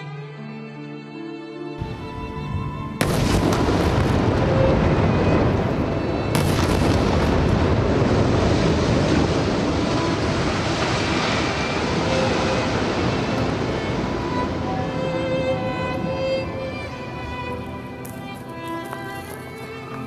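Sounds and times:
soft string music: 0:00.0 - 0:20.0
loud explosion: 0:02.9 - 0:15.1
rumble of blast and falling debris: 0:03.0 - 0:14.6.

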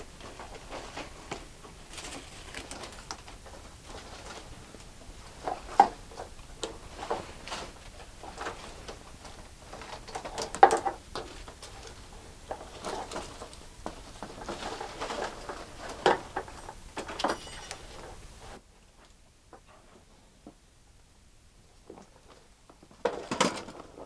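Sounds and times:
vines rustling and snapping: 0:00.0 - 0:17.1.

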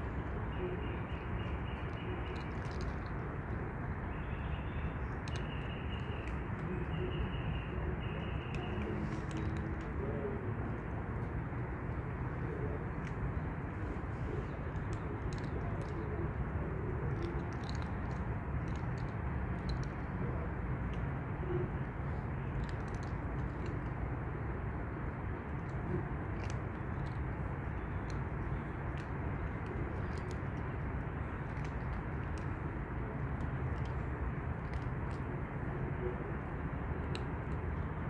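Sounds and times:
small bird chirping: 0:00.0 - 0:09.7
cats eating clicks: 0:00.0 - 0:24.3, 0:24.9 - 0:35.9, 0:36.9 - 0:37.8.

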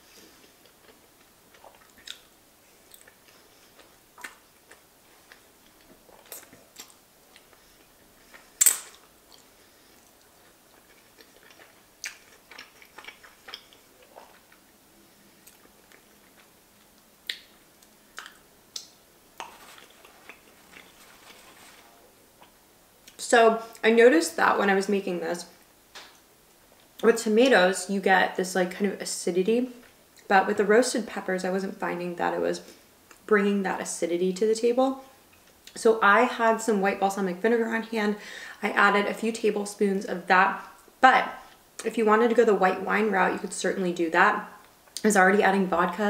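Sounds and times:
wet chewing and mouth smacks: 0:00.4 - 0:14.7, 0:15.4 - 0:21.4.

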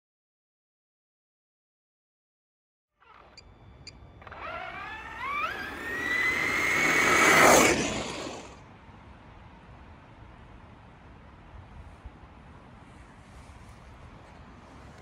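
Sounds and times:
electric motor whine: 0:03.0 - 0:08.6
tyres rushing on pavers: 0:03.1 - 0:08.6.

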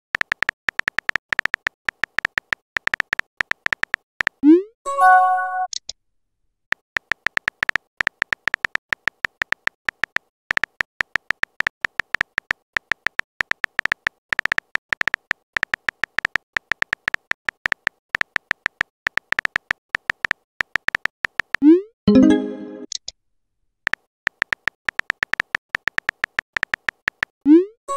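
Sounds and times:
keyboard tap clicks: 0:00.2 - 0:04.4, 0:07.0 - 0:21.6, 0:23.9 - 0:27.3
chiming message tone: 0:04.9 - 0:05.7, 0:22.1 - 0:22.9.

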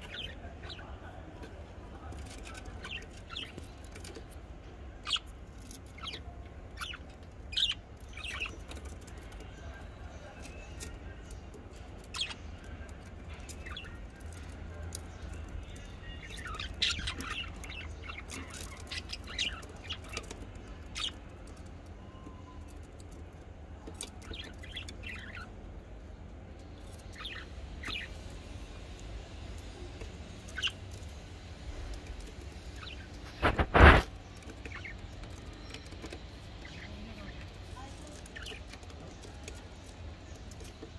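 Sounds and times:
budgerigars chirping: 0:02.4 - 0:04.2, 0:05.0 - 0:08.9, 0:13.2 - 0:21.2, 0:24.2 - 0:25.5, 0:27.0 - 0:28.2, 0:30.4 - 0:40.9.

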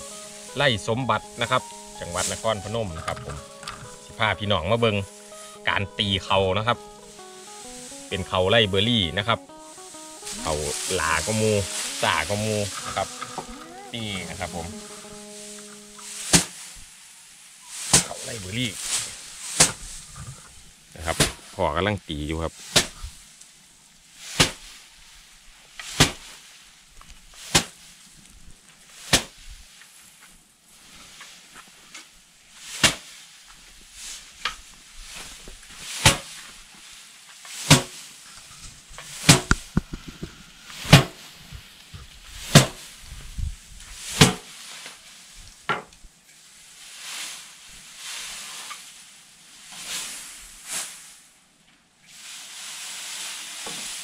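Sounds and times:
straw rustling: 0:00.0 - 0:17.0
rice sheaves slapping wooden board: 0:22.7 - 0:23.0, 0:24.3 - 0:24.7, 0:25.8 - 0:26.4, 0:27.4 - 0:27.8, 0:29.0 - 0:29.4, 0:32.7 - 0:33.1, 0:35.9 - 0:36.4, 0:37.5 - 0:38.0, 0:39.2 - 0:39.7, 0:42.5 - 0:42.8, 0:44.1 - 0:45.0, 0:53.2 - 0:54.0.

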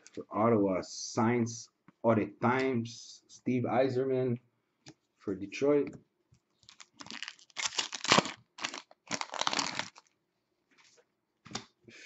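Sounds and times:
foil wrapper tearing and crinkling: 0:06.6 - 0:10.1.

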